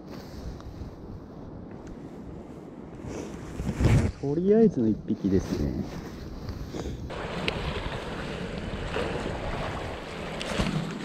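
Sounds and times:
sea waves washing: 7.1 - 11.0.

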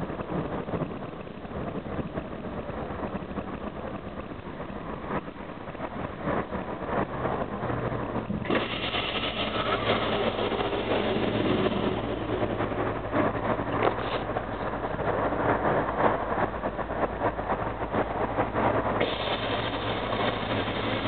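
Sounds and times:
bus engine and road noise: 0.0 - 21.0.

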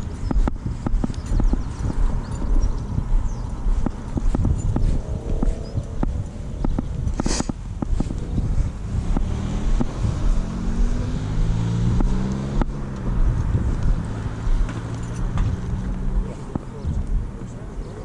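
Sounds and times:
footsteps: 0.0 - 18.0
wind buffeting microphone: 0.0 - 18.0
car driving past: 8.7 - 17.1.

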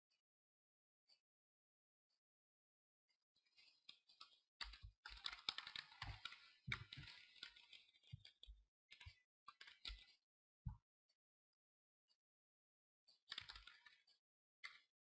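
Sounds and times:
typing on a keyboard: 3.9 - 10.2, 13.3 - 14.9.

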